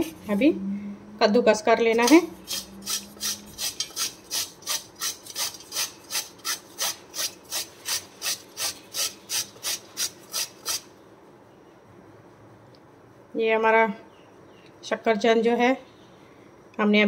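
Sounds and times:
sweet potato grated on steel grater: 0:02.0 - 0:10.9.

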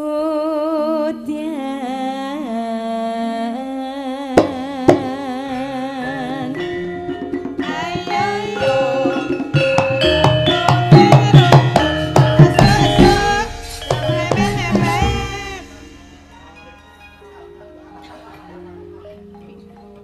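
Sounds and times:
woman singing wavering line: 0:00.0 - 0:20.0
hand drum: 0:04.4 - 0:20.0
metallophone notes: 0:04.9 - 0:20.0.

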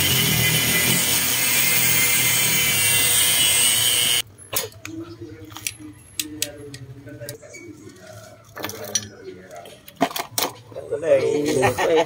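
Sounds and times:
angle grinder grinding metal: 0:00.0 - 0:04.2.

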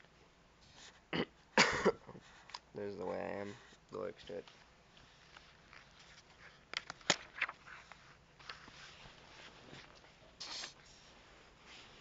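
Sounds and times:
paper rustling: 0:04.4 - 0:12.0.

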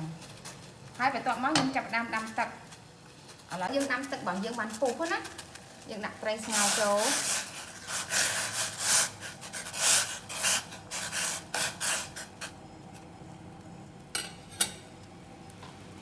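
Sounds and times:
water boiling: 0:00.0 - 0:16.0
metal spoon scraping a pot: 0:06.4 - 0:12.5.

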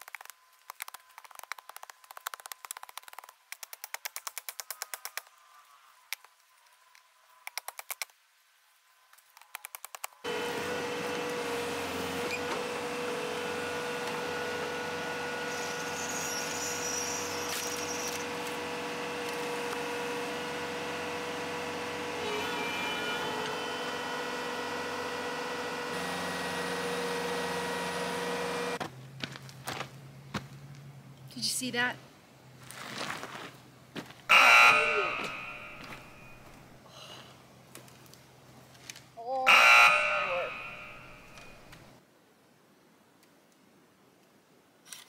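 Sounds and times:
loader engine whining: 0:10.3 - 0:28.8, 0:34.3 - 0:36.8, 0:39.5 - 0:41.8.

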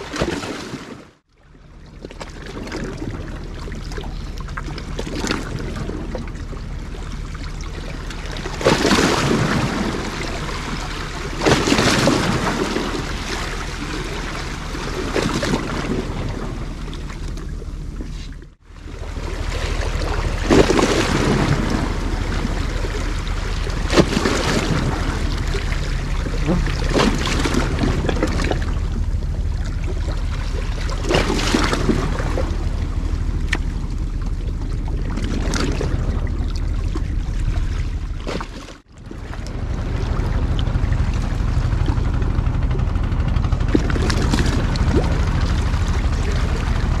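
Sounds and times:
sea waves lapping against rocks: 0:00.0 - 0:47.0
low hum: 0:01.3 - 0:47.0
wind noise: 0:39.0 - 0:47.0.

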